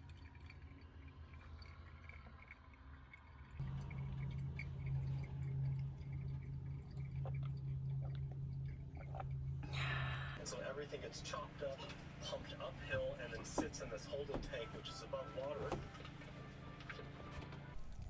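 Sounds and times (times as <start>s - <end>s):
coffee dripping into carafe: 0.0s - 10.7s, 17.8s - 18.0s
steady low hum: 3.6s - 13.9s.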